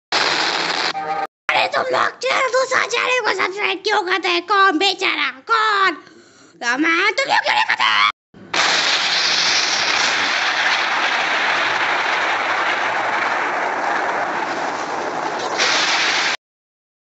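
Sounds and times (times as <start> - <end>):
explosion rushing roar: 8.5 - 16.4.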